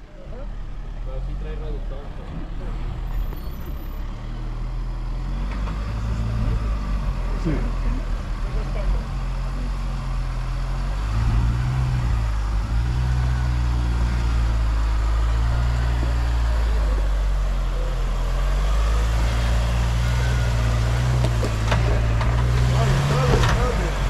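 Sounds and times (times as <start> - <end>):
truck engine at low revs: 0.0 - 24.0.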